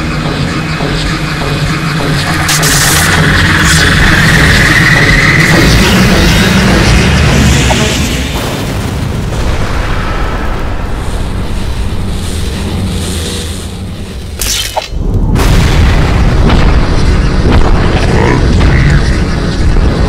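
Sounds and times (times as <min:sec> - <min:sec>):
heavy low rumbling: 0:00.0 - 0:20.0
explosion booms: 0:07.2 - 0:12.7, 0:15.2 - 0:20.0.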